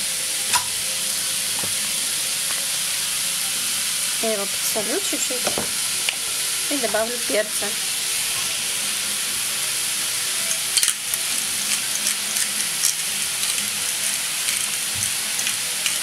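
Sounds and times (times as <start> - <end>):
meat sizzling in a frying pan: 0.0 - 16.0.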